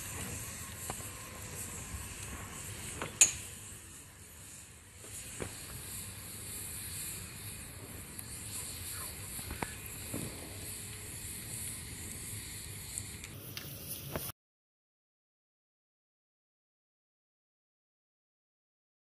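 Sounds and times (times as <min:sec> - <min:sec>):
fire crackling pops: 0:00.0 - 0:14.3
campfire hissing: 0:00.0 - 0:14.4.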